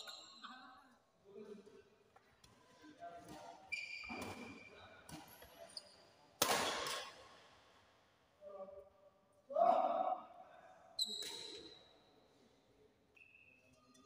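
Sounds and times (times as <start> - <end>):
racket hitting shuttlecock: 6.4 - 7.2.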